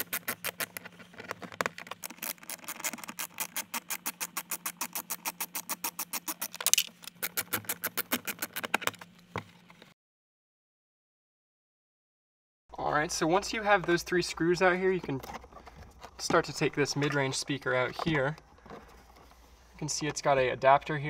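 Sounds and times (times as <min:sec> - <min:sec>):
hand ratchet clicking: 0:02.0 - 0:08.8.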